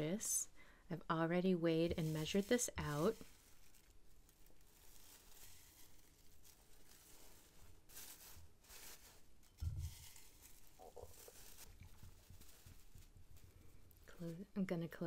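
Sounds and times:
filter bag rustling: 1.5s - 15.0s.

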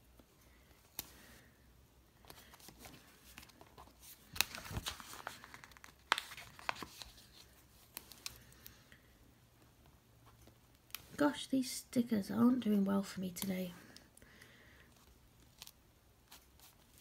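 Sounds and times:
stickers peeling and crinkling: 2.3s - 8.8s.

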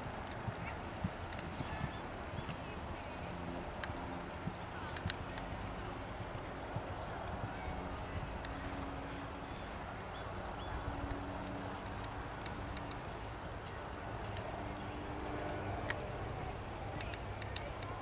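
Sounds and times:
horse hoofbeats on grass: 0.0s - 3.6s
outdoor background hiss: 0.0s - 18.0s
faint sharp clicks: 4.9s - 6.1s, 11.1s - 13.0s, 13.6s - 14.6s, 17.0s - 18.0s.

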